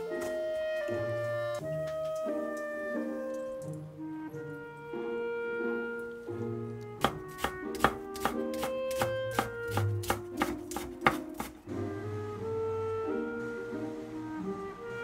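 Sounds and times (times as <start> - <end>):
instrumental music: 0.0 - 15.0
knife chopping on wooden board: 7.0 - 11.6.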